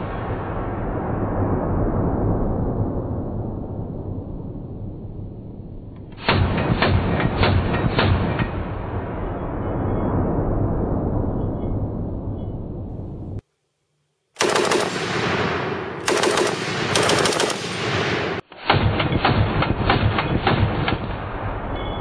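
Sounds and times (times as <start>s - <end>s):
machine gun automatic fire: 14.4s - 21.2s.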